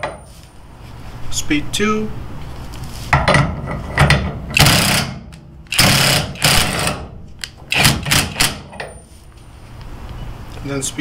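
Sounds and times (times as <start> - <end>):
impact wrench hammering: 3.2 - 9.0.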